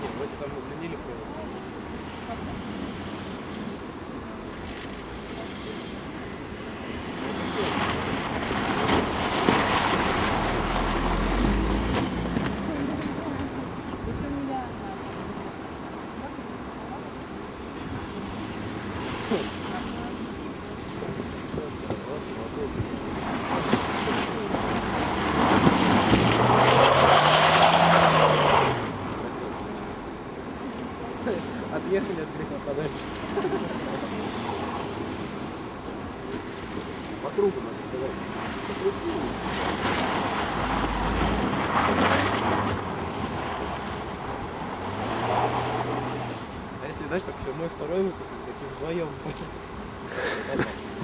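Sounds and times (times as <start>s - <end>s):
spinning tyres hissing on snow: 1.5s - 13.3s, 17.6s - 46.9s
car engine revving hard: 23.5s - 29.0s
tyres hissing on snow: 50.0s - 51.0s.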